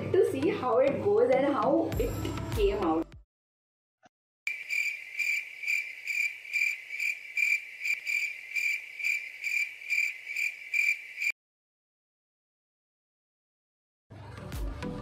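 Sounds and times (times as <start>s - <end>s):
cricket chirping: 4.5s - 11.4s.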